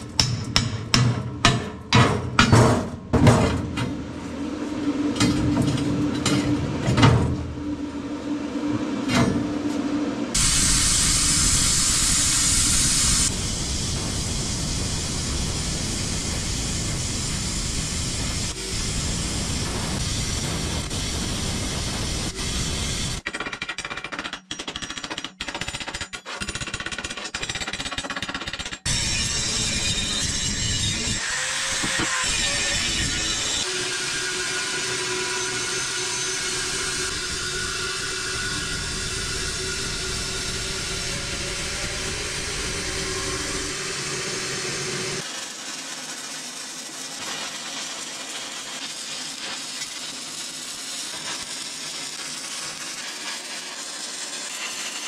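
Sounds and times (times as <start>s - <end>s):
hammer strikes: 0.0s - 4.0s, 5.2s - 7.5s
power tool hissing: 10.4s - 23.2s, 28.9s - 55.0s.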